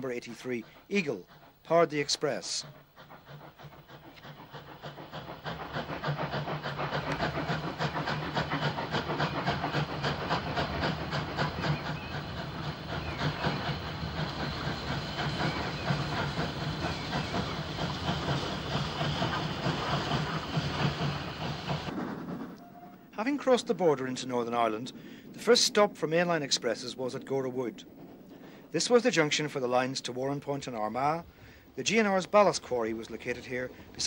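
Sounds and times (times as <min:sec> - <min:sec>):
steam hissing: 0:00.0 - 0:22.5
train wheels clattering over rail joints: 0:02.8 - 0:22.6.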